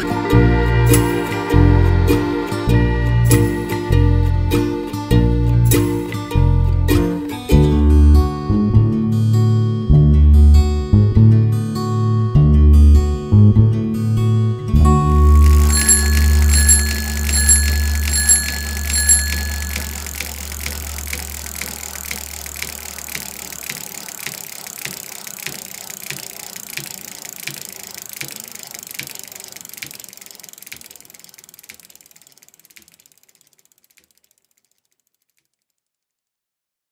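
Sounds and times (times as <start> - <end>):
bicycle freewheel ticking: 0.0 - 1.6, 15.0 - 36.2
bicycle bell ringing: 15.0 - 23.0.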